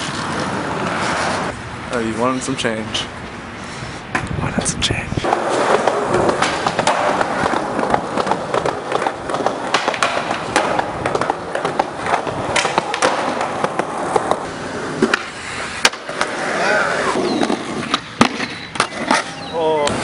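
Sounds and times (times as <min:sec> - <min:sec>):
skateboard wheels rolling: 0:00.0 - 0:01.6, 0:05.2 - 0:20.0
skateboard clacking on ground: 0:05.2 - 0:20.0.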